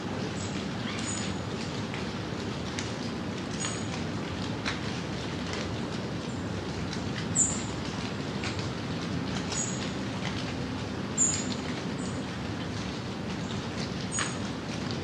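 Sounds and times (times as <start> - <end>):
light rain: 0.0 - 15.0.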